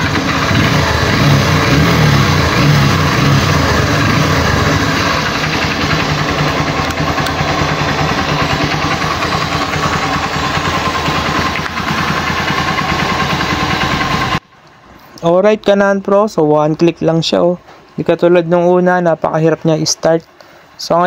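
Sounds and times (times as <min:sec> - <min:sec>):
motorcycle engine idling: 0:00.0 - 0:14.4.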